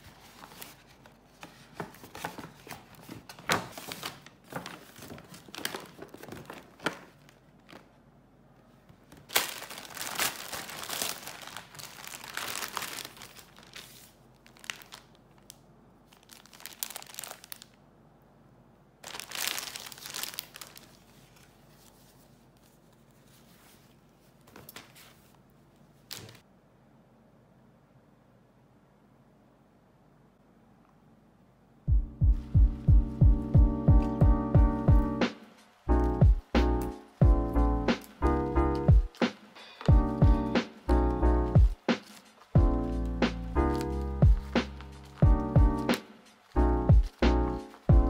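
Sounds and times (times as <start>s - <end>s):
plastic packaging crinkling: 0.0s - 8.0s, 9.0s - 17.8s, 19.0s - 23.5s, 38.0s - 47.9s.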